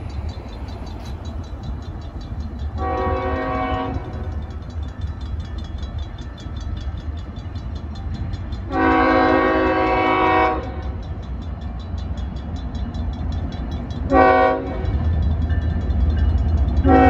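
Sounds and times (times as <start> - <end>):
crossing bell dinging rapidly: 0.0 - 17.0
freight train rumble: 0.0 - 17.0
locomotive air horn blast: 2.8 - 4.2, 8.7 - 10.8, 14.1 - 14.9.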